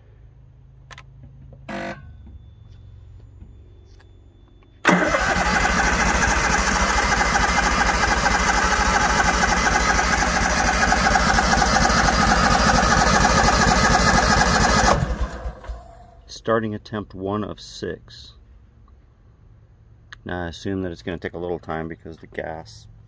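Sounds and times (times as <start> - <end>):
engine cranking on starter motor: 4.8 - 16.2.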